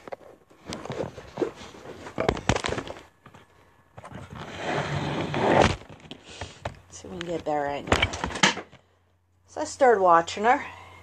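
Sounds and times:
rubbing rustle: 0.0s - 2.2s.

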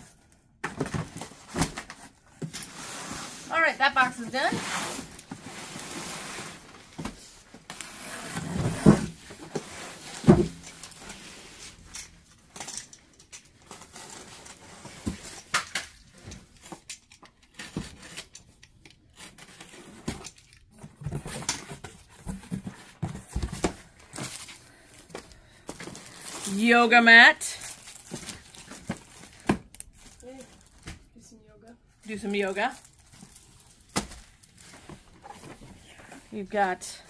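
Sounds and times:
cardboard boxes knocking and rustling: 0.6s - 2.6s, 8.3s - 10.9s, 20.8s - 24.5s.

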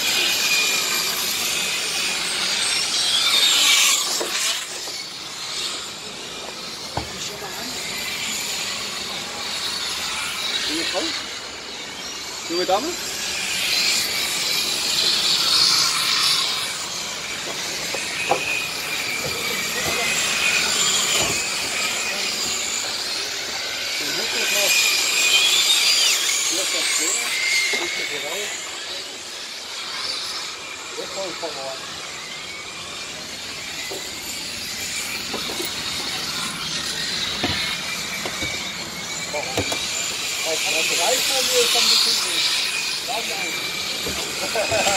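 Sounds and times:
model trucks motor whine: 0.0s - 44.9s
model truck motors whining: 30.5s - 44.9s.

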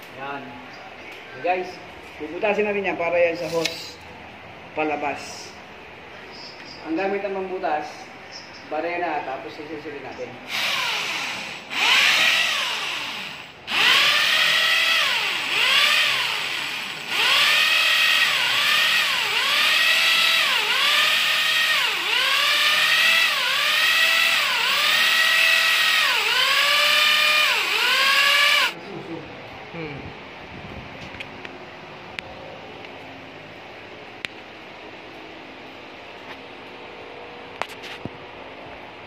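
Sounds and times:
electric drill boring into wall: 10.5s - 28.8s.

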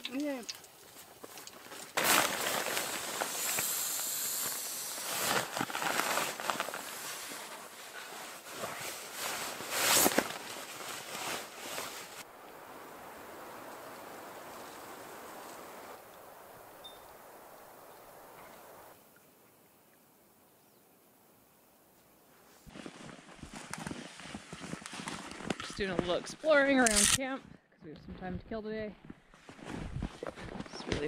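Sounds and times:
faint steady hiss: 0.0s - 26.9s
fabric rustling and swishing: 1.6s - 3.7s, 4.3s - 12.3s, 22.5s - 26.6s, 29.0s - 31.0s.

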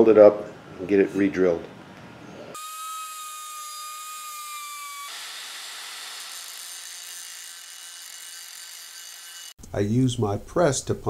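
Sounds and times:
angle grinder cutting steel: 2.6s - 9.6s.

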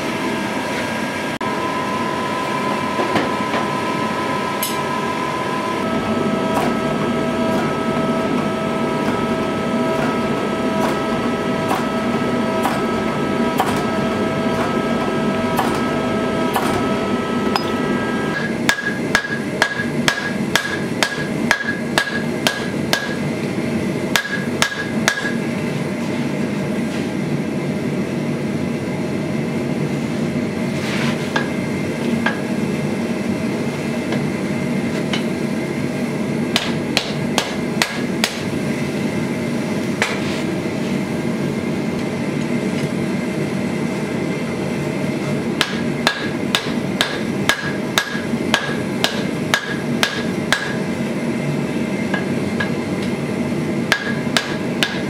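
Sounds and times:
hammer striking metal on anvil: 17.5s - 23.2s, 24.1s - 25.4s, 36.5s - 38.5s, 45.6s - 50.9s, 53.9s - 55.0s.

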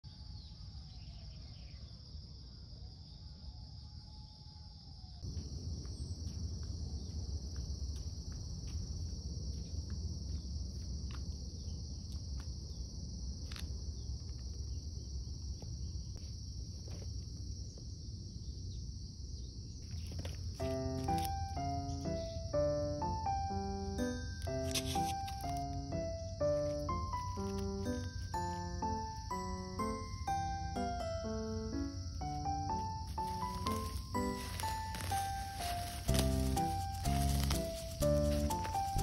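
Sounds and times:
crickets and insects chirping: 0.0s - 39.0s.

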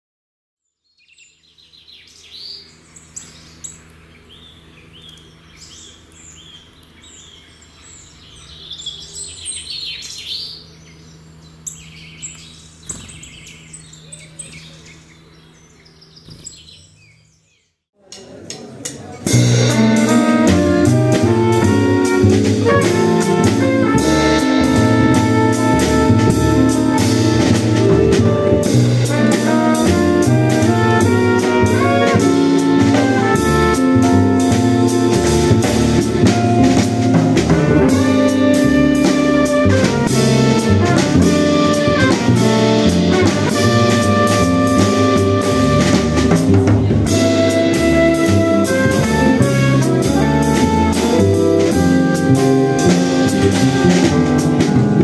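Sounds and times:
bird-like chirping: 0.6s - 17.8s
jazz quintet playing: 19.2s - 55.0s.

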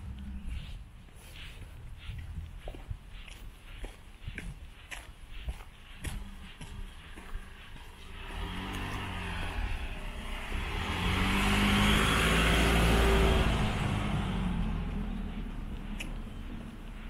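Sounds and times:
tyre noise on road: 0.0s - 17.0s
minivan engine driving past: 7.8s - 17.0s.

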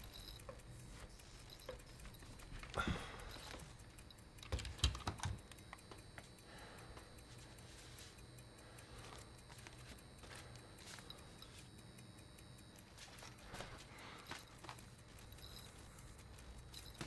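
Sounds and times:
paper rustling: 12.9s - 15.9s.

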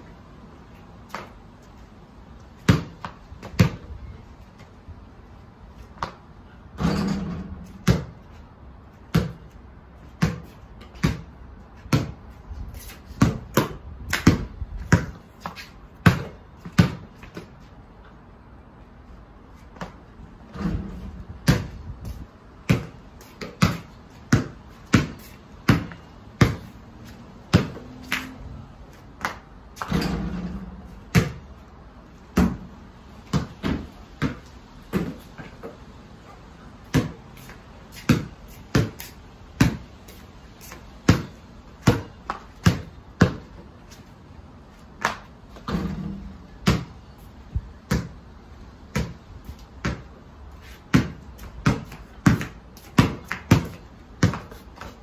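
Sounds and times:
basketball bouncing on paving: 2.5s - 4.0s, 5.9s - 17.7s, 19.8s - 28.4s, 29.1s - 35.8s, 36.8s - 44.1s, 44.9s - 55.0s
ball striking basketball hoop: 6.8s - 8.2s, 29.8s - 31.4s.

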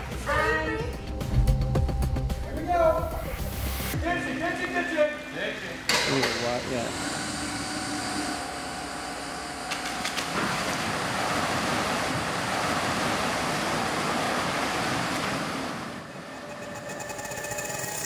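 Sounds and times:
water rushing and splashing: 7.2s - 16.9s.

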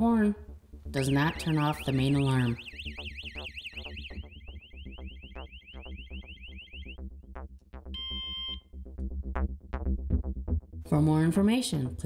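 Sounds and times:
quiet background music: 0.0s - 7.0s, 10.8s - 12.0s
alarm sounding: 0.9s - 7.1s, 7.9s - 8.7s
electronic siren sweeps: 0.9s - 7.1s
short electronic beep: 8.0s - 8.6s.

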